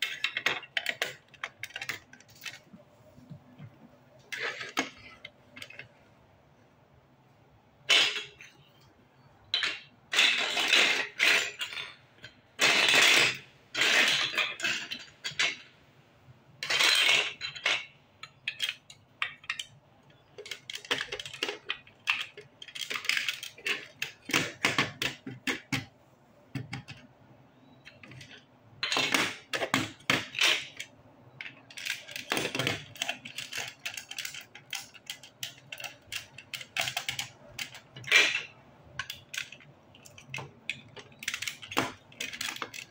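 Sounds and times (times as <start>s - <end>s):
plastic bricks clattering: 16.6s - 25.9s, 27.9s - 42.9s.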